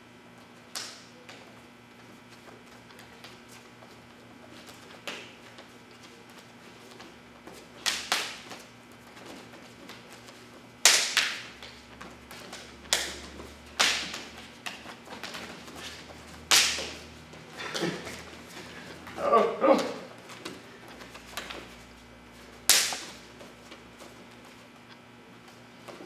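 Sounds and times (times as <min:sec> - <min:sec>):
hands slapping on bodies: 0:16.4 - 0:17.0, 0:22.6 - 0:23.2.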